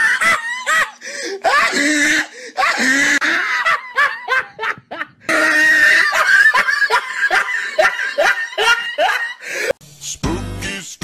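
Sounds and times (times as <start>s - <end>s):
person laughing hard: 0.0s - 9.7s
music: 9.8s - 11.0s.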